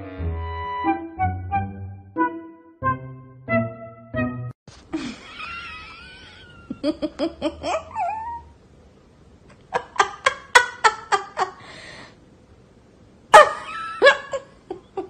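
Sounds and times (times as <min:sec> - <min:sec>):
person laughing: 0:04.9 - 0:08.5, 0:09.6 - 0:11.6, 0:13.4 - 0:15.0
breathy gasp: 0:11.6 - 0:12.2.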